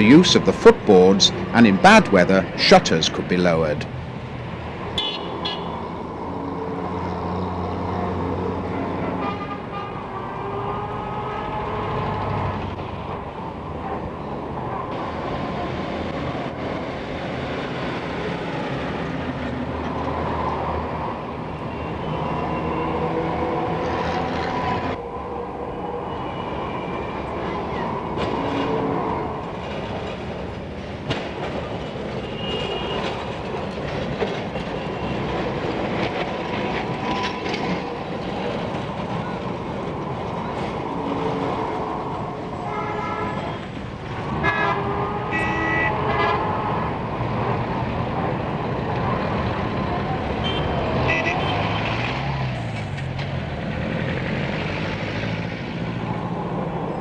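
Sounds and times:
tram rumbling: 0:00.0 - 0:57.0
tram horn toots: 0:04.9 - 0:12.8, 0:21.6 - 0:30.3, 0:32.1 - 0:47.6, 0:50.1 - 0:52.4
wheel clatter over track: 0:27.6 - 0:42.5.

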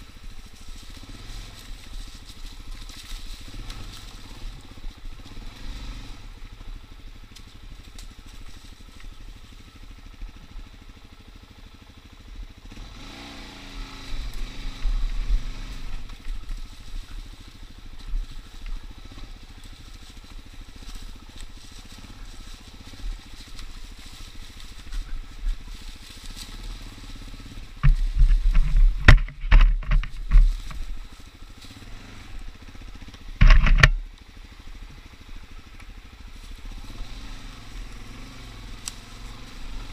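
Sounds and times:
dirt bike engine running: 0:00.0 - 0:39.9
loud bumps and rushes: 0:27.5 - 0:31.0, 0:33.3 - 0:34.0.

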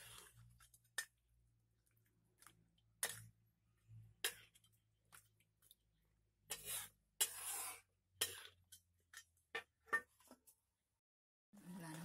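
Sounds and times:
ladle scraping a pan: 0:06.5 - 0:09.3.

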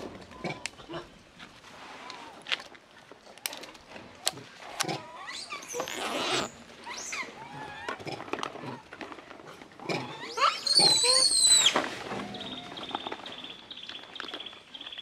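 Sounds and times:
macaque screaming: 0:10.2 - 0:11.7
short squeaky calls: 0:10.2 - 0:11.8.

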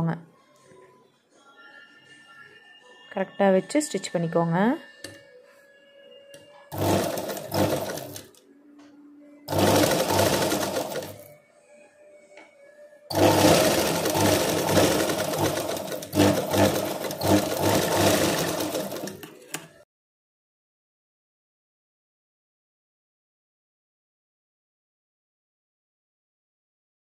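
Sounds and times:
sewing machine stitching: 0:06.7 - 0:08.4, 0:09.5 - 0:11.3, 0:13.1 - 0:19.7.

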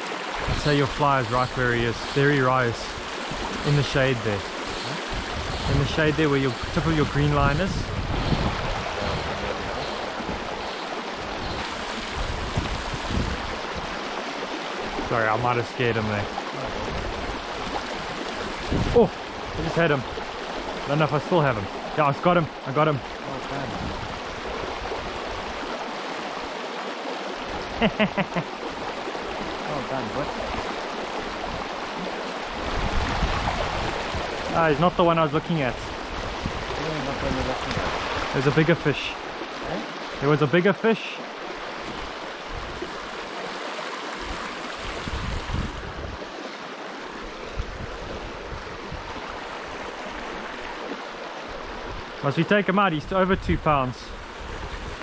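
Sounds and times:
stream flowing: 0:00.0 - 0:55.0
person speaking: 0:03.6 - 0:10.2, 0:29.7 - 0:30.3.

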